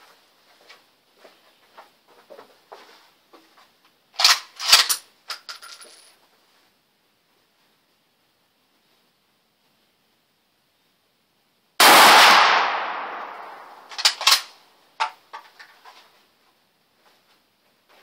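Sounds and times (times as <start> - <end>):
rifle bolt clicking and clacking: 4.2 - 5.4, 13.9 - 15.2
loud rifle shot: 11.8 - 14.5.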